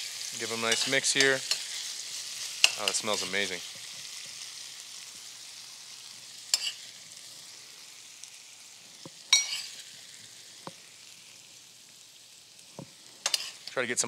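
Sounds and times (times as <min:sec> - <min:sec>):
vegetables sizzling in a hot pan: 0:00.0 - 0:14.0
metal spoon clinking against pan: 0:00.7 - 0:01.7, 0:06.5 - 0:06.8, 0:09.3 - 0:09.7, 0:13.2 - 0:13.7.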